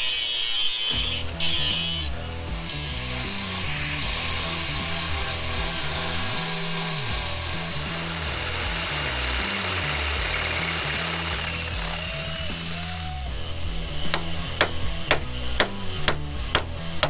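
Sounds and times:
angle grinder grinding steel: 0.0 - 17.0.

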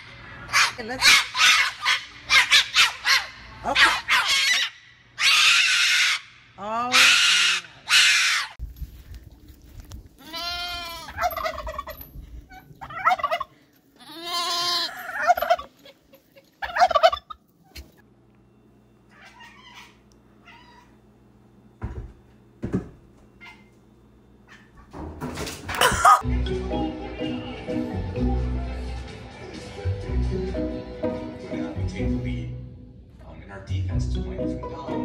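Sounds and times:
cockatoo screeching: 0.4 - 8.6
sheep bleating: 10.2 - 11.2, 14.0 - 15.4.

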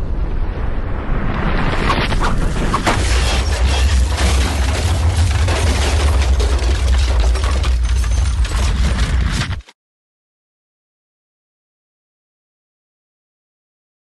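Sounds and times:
deep eruption rumble: 0.0 - 7.7
rushing blast with cracks: 0.0 - 9.6.

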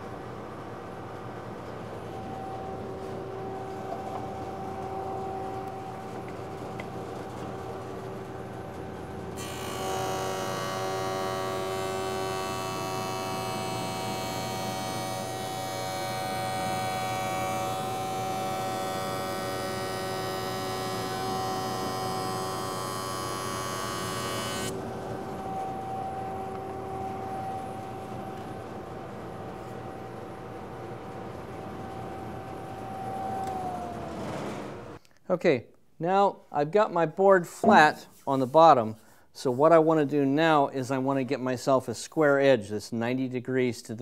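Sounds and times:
wood planing with a whine: 9.4 - 28.8, 31.7 - 35.0
jointer motor humming: 9.4 - 29.1, 31.5 - 35.0.

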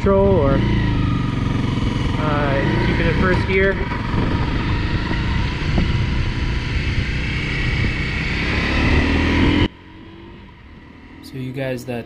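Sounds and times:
motorcycle engine running: 0.0 - 12.0
wind rush on microphone: 1.8 - 9.7.

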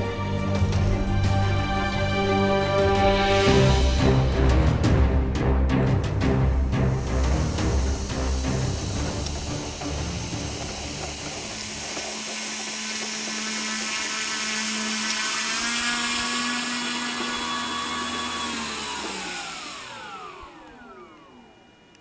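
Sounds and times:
electric motors whining: 6.3 - 22.0.

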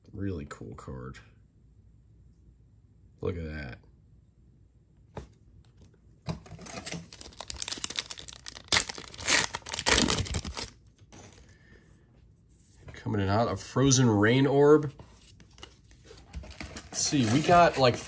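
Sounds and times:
foil pack tearing and crinkling: 6.6 - 10.8.

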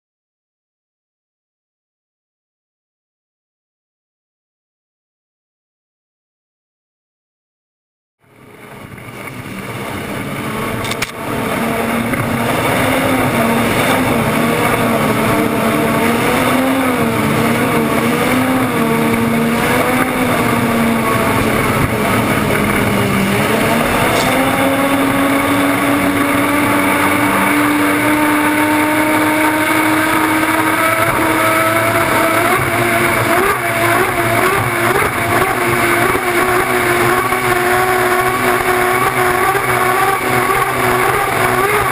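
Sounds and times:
boat engine whine: 8.2 - 41.9
rushing wind and water: 8.8 - 41.9.

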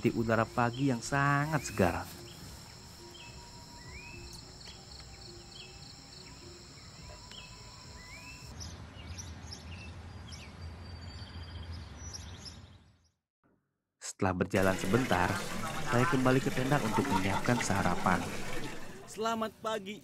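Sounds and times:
high insect trill: 0.0 - 8.5.

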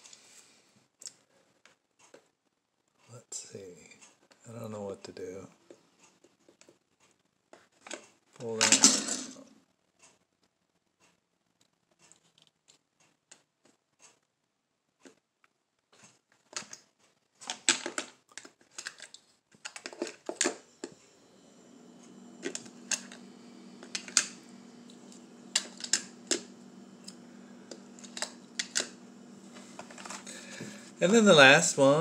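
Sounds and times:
metal toy cars clicking in plastic case: 16.4 - 20.6.

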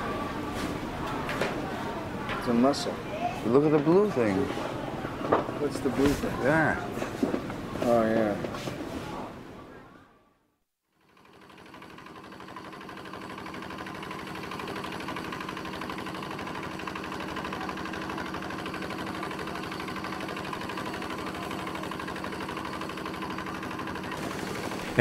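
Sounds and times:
boat engine running: 11.8 - 25.0.

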